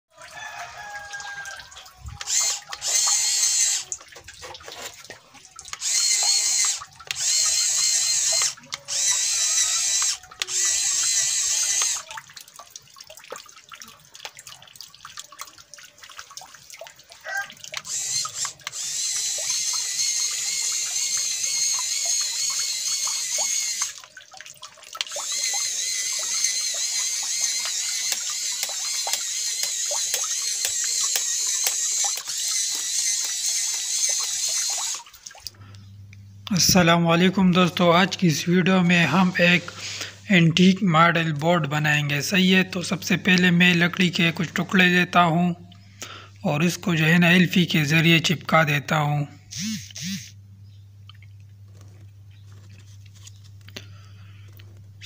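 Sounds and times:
small electric motor whining: 1.0s - 4.0s, 5.7s - 12.2s, 17.3s - 24.1s, 25.0s - 35.1s, 49.4s - 50.4s.

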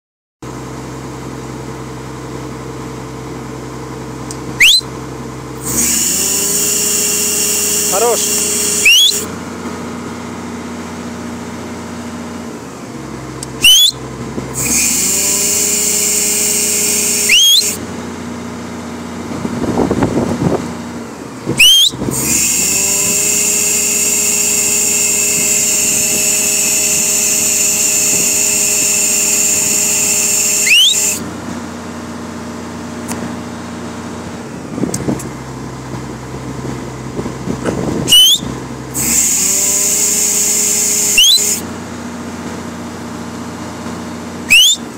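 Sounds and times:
excavator diesel engine running: 0.5s - 44.9s
short rising squeals: 4.6s - 4.9s, 5.6s - 9.4s, 13.5s - 17.8s, 21.6s - 31.3s, 38.0s - 41.7s, 44.5s - 44.9s
high hissing hydraulic whine: 5.6s - 9.4s, 13.6s - 17.9s, 21.6s - 31.3s, 38.0s - 41.7s.

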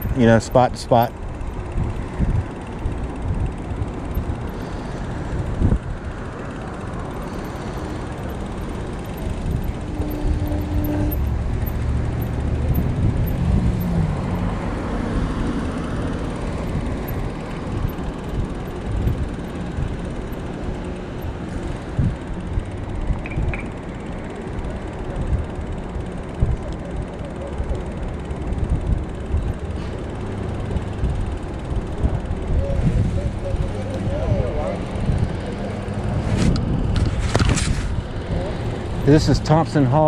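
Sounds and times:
road rumble: 0.0s - 40.0s
wind on microphone: 31.9s - 38.6s.

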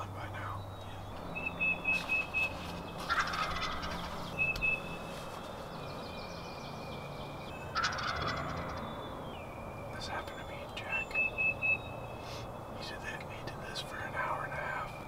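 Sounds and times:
turkey gobbling: 1.4s - 4.8s, 7.7s - 8.8s.

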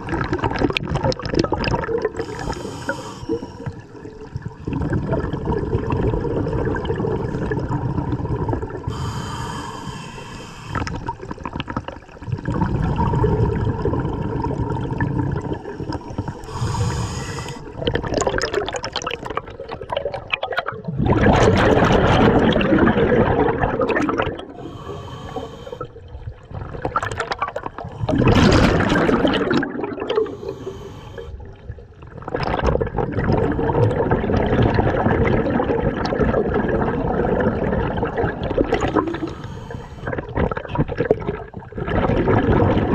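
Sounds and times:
exhaled bubbles rushing: 0.0s - 9.1s, 10.8s - 42.9s
regulator hiss on inhale: 2.2s - 3.9s, 8.9s - 11.1s, 15.7s - 17.8s, 24.6s - 26.0s, 30.2s - 31.4s, 38.9s - 40.1s.

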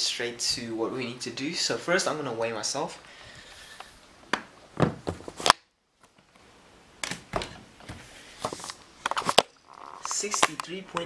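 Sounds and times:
camera handling bumps: 8.4s - 10.6s.

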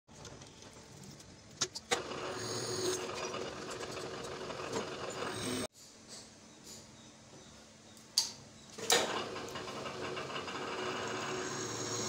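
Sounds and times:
drill grinding into steel: 1.9s - 5.7s, 9.1s - 12.0s.

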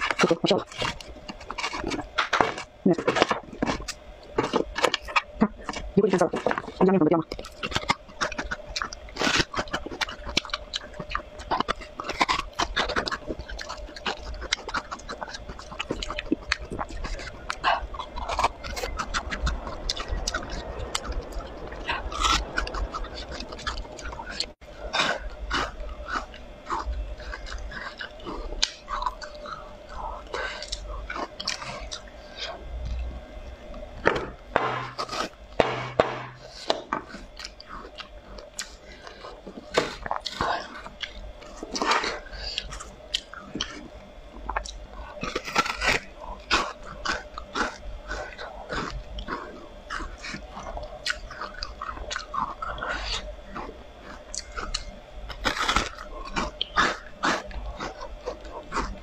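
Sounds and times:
frozen cucumbers rubbed and knocked: 0.0s - 33.1s.

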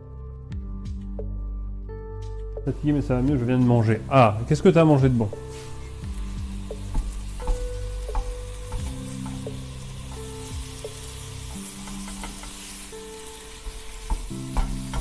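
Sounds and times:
meat sizzling in a frying pan: 4.3s - 15.0s
utensil knocking against pan: 14.1s - 15.0s.

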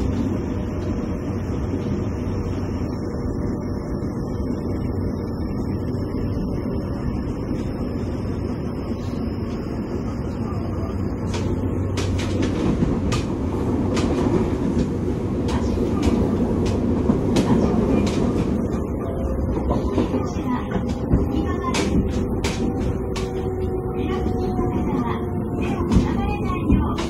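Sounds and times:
train interior rumble: 0.0s - 27.0s.

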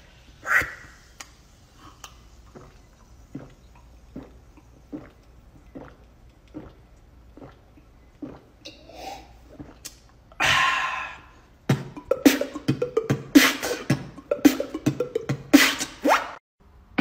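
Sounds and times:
breathy hiss: 0.0s - 6.0s, 10.4s - 11.6s
beatboxing kick and snare: 11.7s - 16.4s.

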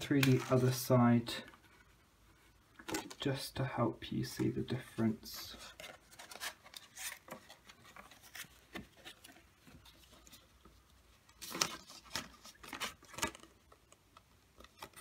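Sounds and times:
card strips sliding and rustling: 0.0s - 0.9s, 5.5s - 10.3s.

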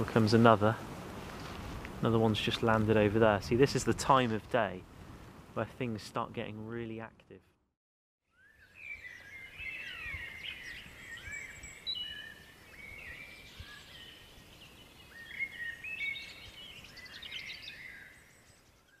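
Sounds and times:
songbirds singing and calling: 8.3s - 19.0s.

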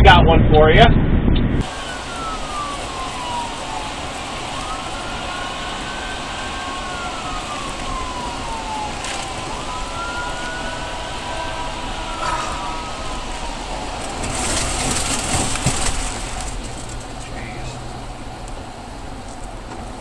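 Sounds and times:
road and tyre noise inside car: 0.0s - 20.0s
faint siren wailing: 1.5s - 19.2s.

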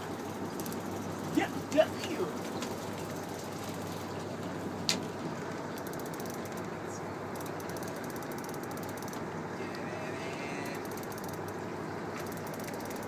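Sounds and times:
steady background noise: 0.0s - 13.0s
fishing reel clicking: 5.8s - 6.7s, 7.3s - 9.2s, 10.6s - 11.6s, 12.2s - 13.0s.

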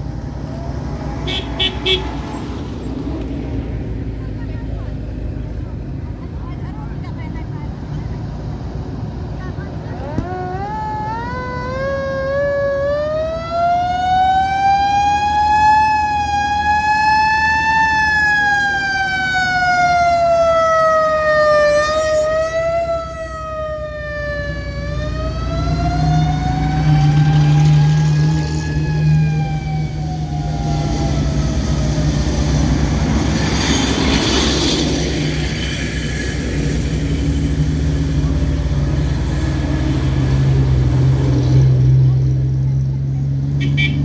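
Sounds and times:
passing vehicle engines: 0.0s - 44.0s
siren wailing: 10.0s - 32.2s.

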